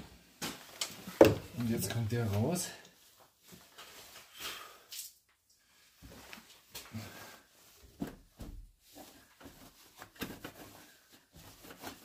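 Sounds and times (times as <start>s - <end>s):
hand work knocks and rattles: 1.1s - 1.6s.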